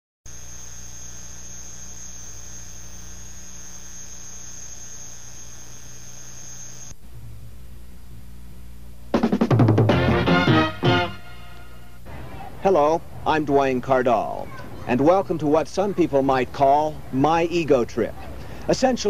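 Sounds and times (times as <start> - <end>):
high-pitched whine: 0.3 - 7.0
electrical mains hum: 0.3 - 9.4.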